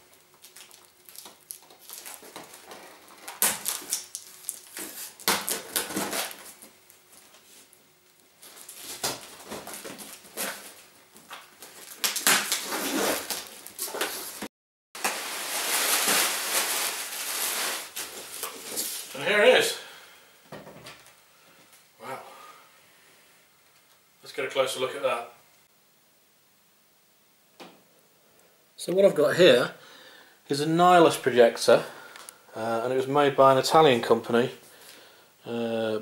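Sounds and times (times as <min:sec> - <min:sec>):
plastic wrapping rustling: 0:00.0 - 0:19.6
tape tearing: 0:00.4 - 0:06.6, 0:08.4 - 0:19.1
knife slitting packing tape: 0:11.8 - 0:14.4.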